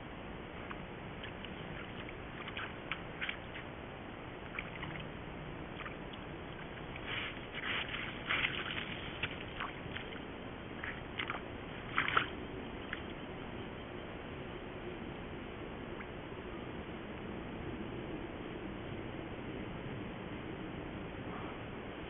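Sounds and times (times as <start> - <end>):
microphone hiss: 0.0 - 22.0
mud and water sloshing: 0.6 - 13.3.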